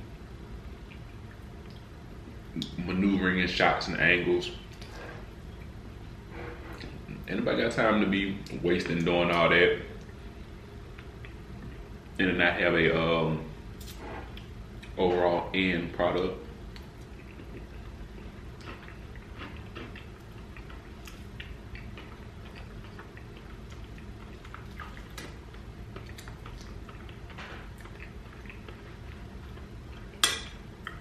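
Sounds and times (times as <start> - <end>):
steady low hum: 0.0 - 31.0
soft chewing: 0.6 - 2.8, 8.4 - 12.2, 13.8 - 15.0, 16.5 - 31.0.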